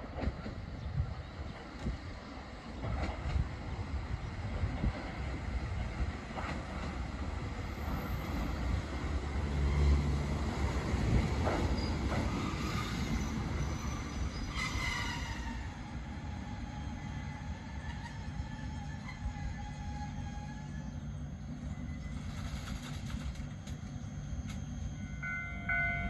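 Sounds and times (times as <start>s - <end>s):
train wheels rumbling on rails: 0.0s - 26.0s
high squealing brake whine: 11.7s - 22.9s.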